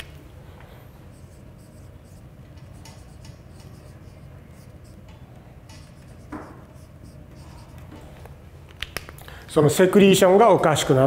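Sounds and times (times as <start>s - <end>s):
low room hum: 0.0s - 11.0s
marker pen writing on whiteboard: 0.6s - 8.2s.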